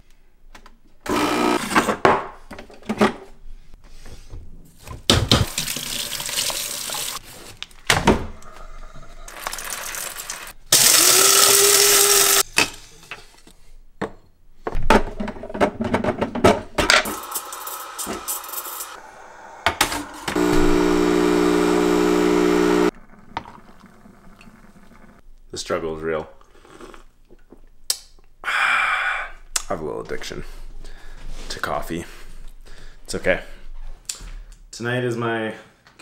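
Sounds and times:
espresso machine hissing: 0:10.8 - 0:12.4, 0:17.1 - 0:22.9
machine whir with hum: 0:20.3 - 0:22.9.

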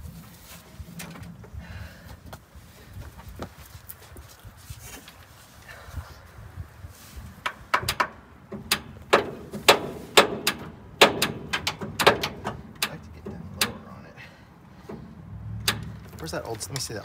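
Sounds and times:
tools clanking on metal: 0:07.7 - 0:13.8.

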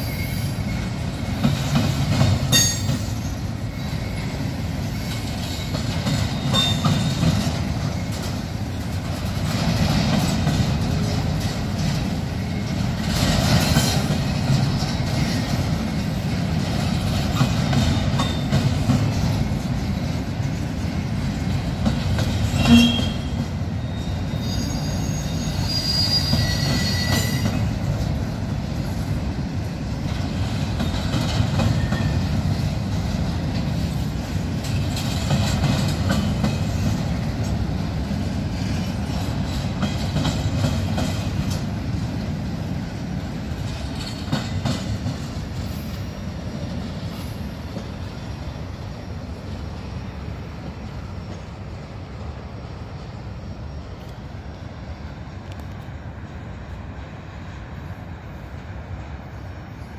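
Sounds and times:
high wheel squeal: 0:00.0 - 0:01.1, 0:02.5 - 0:07.2, 0:22.5 - 0:27.8
train wheels rumbling on rail: 0:00.0 - 0:59.9.

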